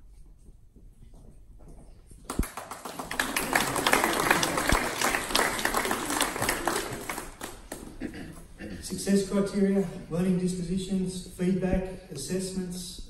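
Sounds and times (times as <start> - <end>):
audience applauding: 2.3 - 8.0.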